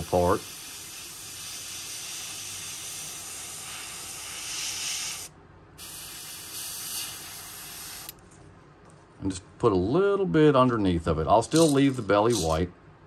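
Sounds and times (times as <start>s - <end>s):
airbrush spraying hiss: 0.0s - 8.2s.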